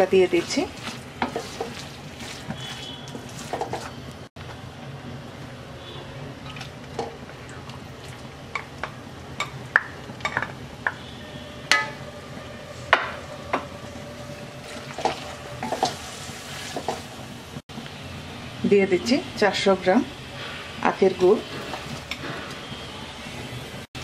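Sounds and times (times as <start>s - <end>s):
wooden spatula scraping metal pan: 0.0s - 4.0s, 14.6s - 17.1s
low steady sizzle: 0.0s - 24.0s.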